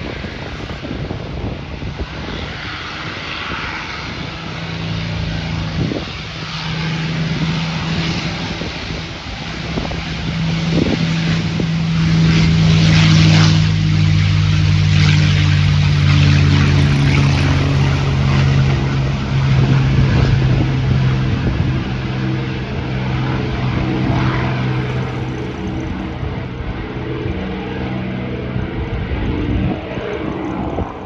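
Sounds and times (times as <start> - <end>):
propeller engine drone: 0.0 - 31.0.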